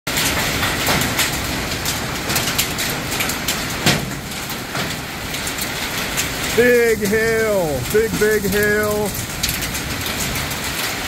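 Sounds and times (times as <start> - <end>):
hailstones knocking: 0.1 - 11.0
heavy rain hissing: 0.9 - 11.0.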